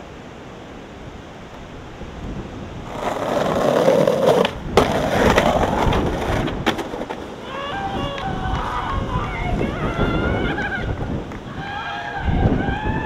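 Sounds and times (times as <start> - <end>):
skateboard wheels rolling on pavement: 1.1 - 13.0
skateboard scraping concrete ledge: 2.8 - 8.0
skateboard cracking: 2.8 - 9.4
skateboard landing clacks: 2.9 - 7.4.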